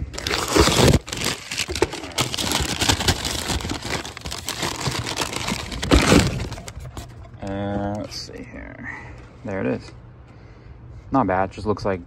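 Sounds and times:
packing paper crinkling: 0.0s - 7.3s.

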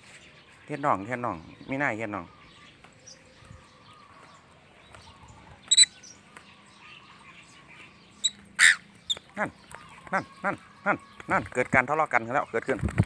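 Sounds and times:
faint background noise: 0.0s - 13.0s
parrot chirping: 5.7s - 6.2s, 8.2s - 9.2s.

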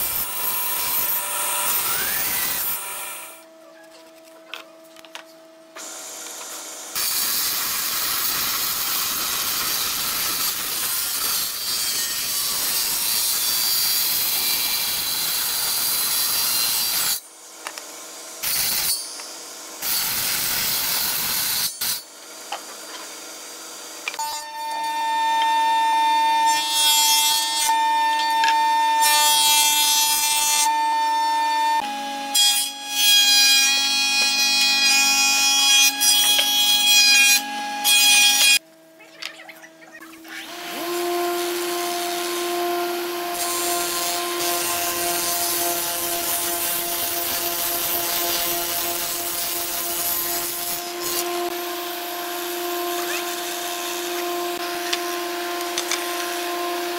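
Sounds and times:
power tool cutting wood hiss: 0.0s - 3.4s, 5.8s - 17.2s.

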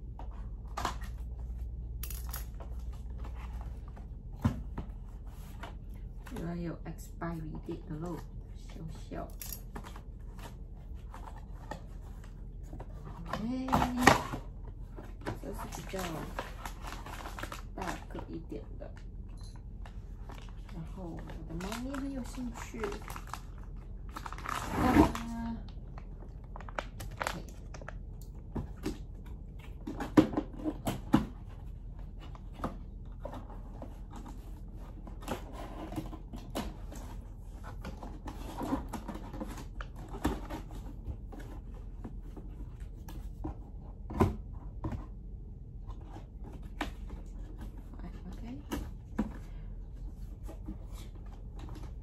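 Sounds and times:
paper packaging rustling and tearing: 15.4s - 18.2s, 20.2s - 28.0s.

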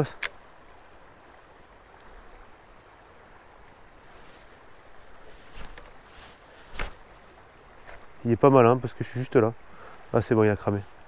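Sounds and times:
river water flowing: 0.0s - 11.0s.

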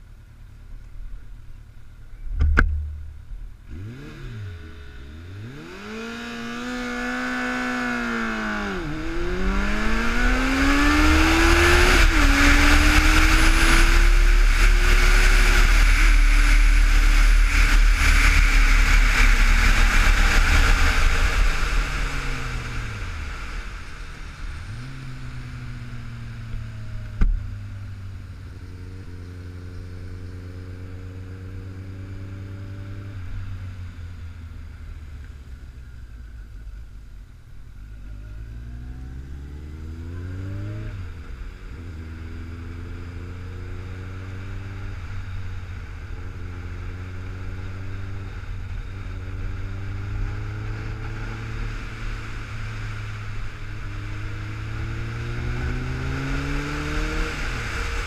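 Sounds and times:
motorcycle engine revving: 1.2s - 36.8s, 37.6s - 58.0s
sharp knock: 2.3s - 3.4s
wind noise: 47.7s - 58.0s.

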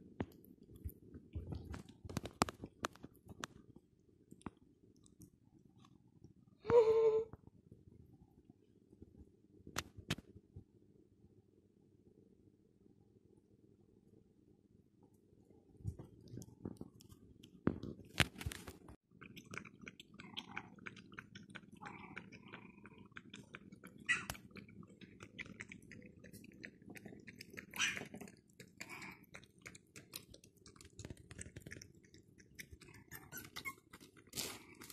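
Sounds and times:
puppy chewing and gnawing: 16.2s - 34.9s.

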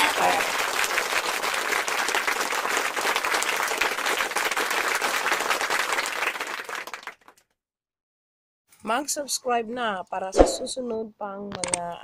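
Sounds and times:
hands clapping: 0.0s - 7.5s.

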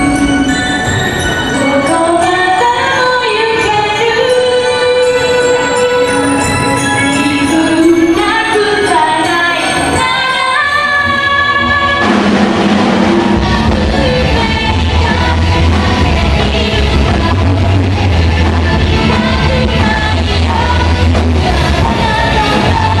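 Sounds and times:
person singing: 0.0s - 12.1s, 13.4s - 23.0s
live rock band playing: 11.2s - 23.0s
heavy bass line: 12.0s - 23.0s.

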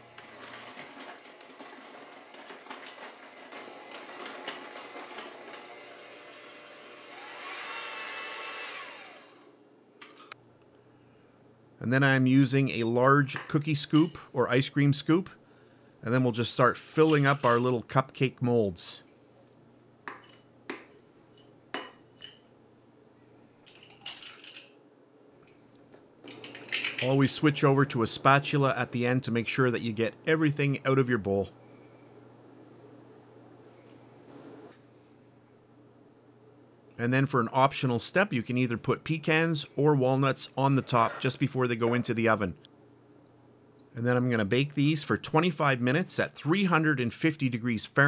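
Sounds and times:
electric hand mixer running: 0.0s - 9.5s.

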